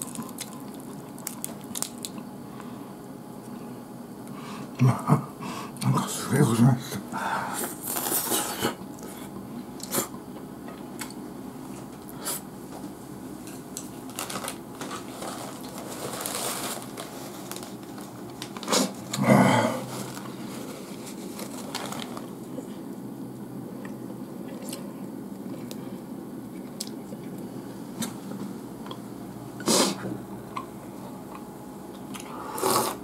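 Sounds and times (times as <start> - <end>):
chewing noises: 0.0 - 2.3.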